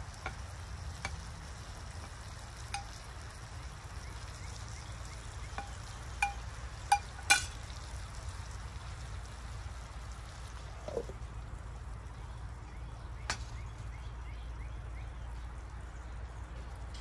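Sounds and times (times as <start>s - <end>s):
food sizzling in a pan: 0.0s - 11.2s
utensil clinking on metal pan: 2.0s - 3.0s, 5.5s - 7.6s.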